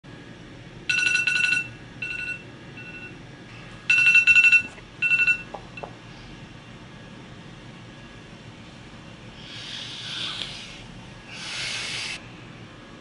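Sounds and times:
electronic alarm ringing: 0.9 - 3.2, 3.9 - 5.9.

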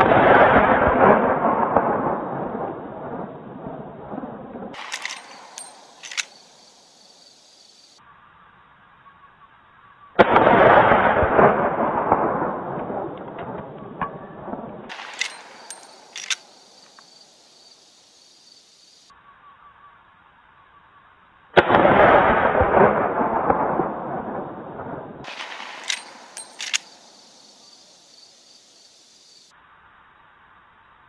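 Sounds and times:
rifle lever action clicks: 4.8 - 6.4, 15.0 - 16.5, 25.8 - 26.9
rifle shot: 25.2 - 27.0.

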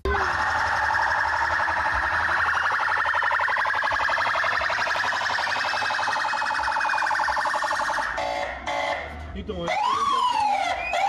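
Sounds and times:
electronic siren alarm pulsing: 0.0 - 9.1.

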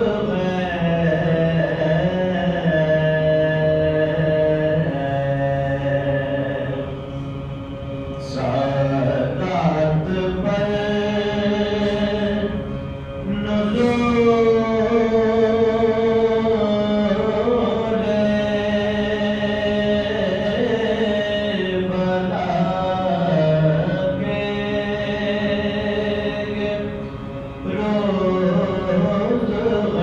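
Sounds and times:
men chanting a lament: 8.2 - 12.6.

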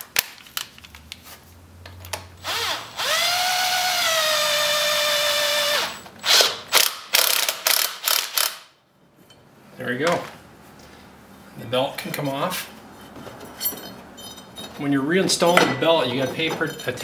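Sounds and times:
cordless drill motor whine: 2.4 - 6.4.

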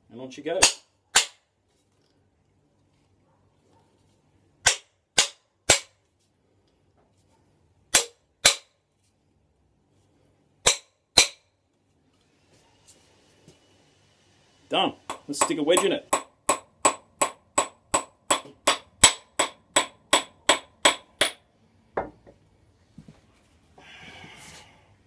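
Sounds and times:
hammer knocking on wooden handle: 22.0 - 22.4.

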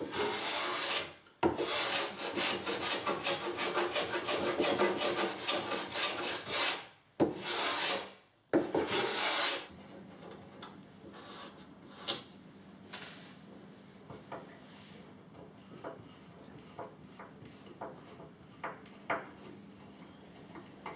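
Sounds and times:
block plane scraping wood: 0.0 - 9.7.

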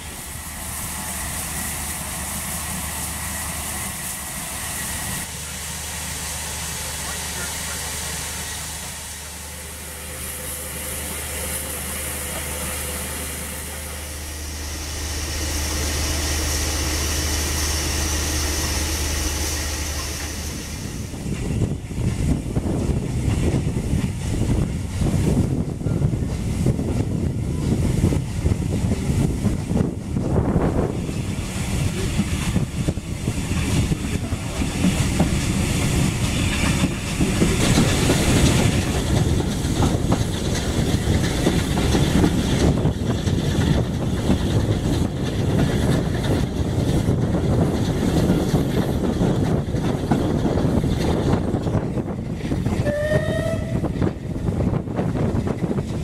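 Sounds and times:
steam train rumble: 0.0 - 56.0
train wheels clicking over rail joints: 0.0 - 56.0
train whistle: 52.8 - 54.0.

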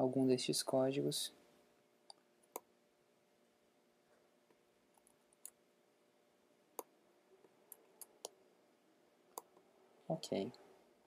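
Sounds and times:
computer mouse clicks: 9.3 - 9.6.

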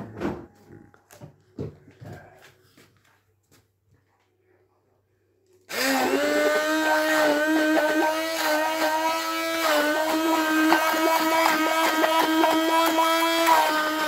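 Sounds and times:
stick blender motor whine: 5.7 - 14.0.

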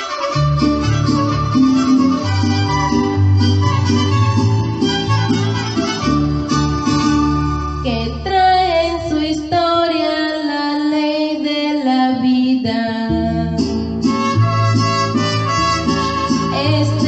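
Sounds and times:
bass: 0.0 - 17.0
guitar: 0.0 - 17.0
person singing: 7.8 - 13.6, 16.5 - 17.0.

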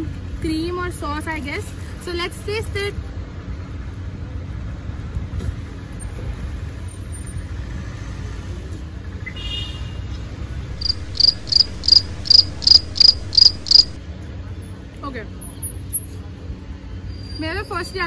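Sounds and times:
street traffic rumble: 0.0 - 18.0
high-pitched chirping beep: 10.8 - 14.0.

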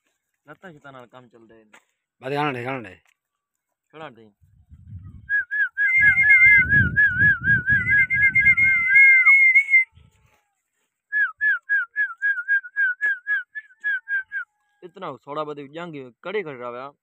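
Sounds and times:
person whistling warbling tone: 5.0 - 10.0
short whistled chirps: 5.1 - 10.0
steady whistled tone: 5.2 - 9.9.

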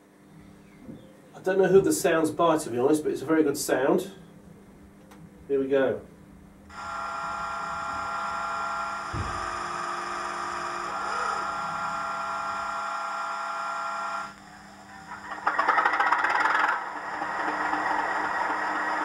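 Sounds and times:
steady electronic whine: 6.7 - 19.0
thump: 9.1 - 9.5.

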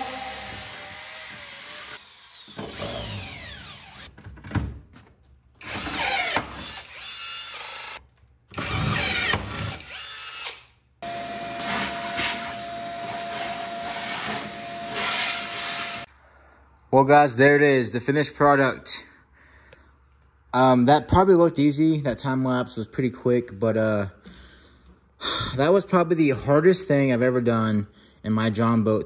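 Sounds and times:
power drill drilling metal: 0.0 - 4.1, 5.6 - 8.0, 8.6 - 16.1
shop vacuum humming: 0.0 - 4.1, 11.0 - 16.1.

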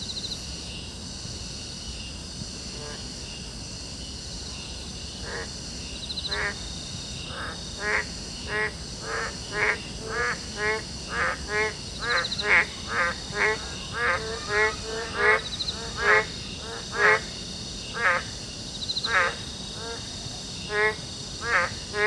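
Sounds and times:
insects chirring: 0.0 - 22.0
frog croaking: 5.2 - 6.6, 7.2 - 22.0.

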